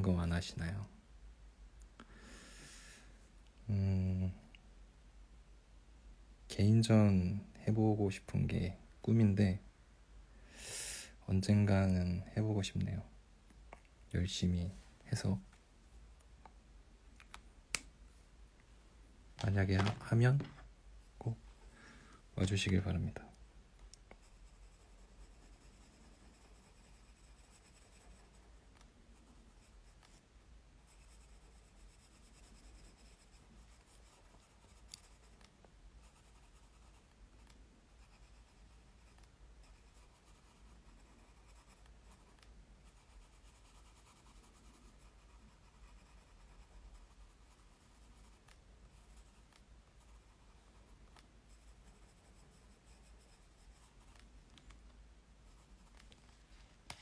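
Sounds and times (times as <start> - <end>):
pen scratching on paper: 24.2 - 30.2, 30.9 - 35.4, 36.0 - 54.2.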